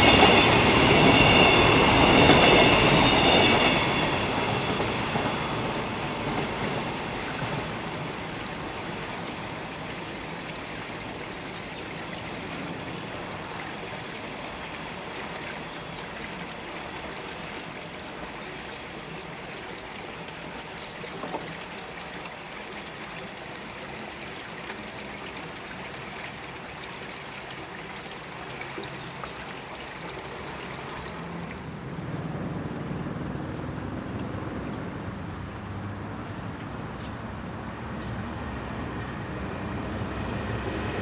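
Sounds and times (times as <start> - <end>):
train wagons rattling over rails: 0.0 - 22.3.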